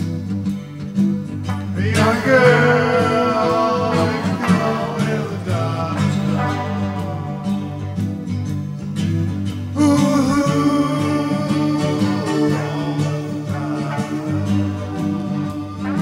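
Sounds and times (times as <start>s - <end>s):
rock band playing: 0.0s - 10.9s.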